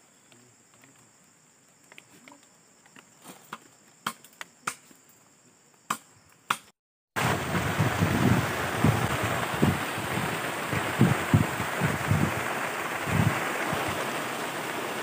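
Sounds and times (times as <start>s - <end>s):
high insect drone: 0.0s - 6.5s.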